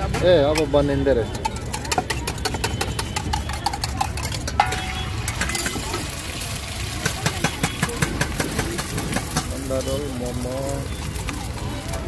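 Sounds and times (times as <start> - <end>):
egg frying on griddle: 0.0 - 12.0
metal utensils clicking: 0.1 - 6.4.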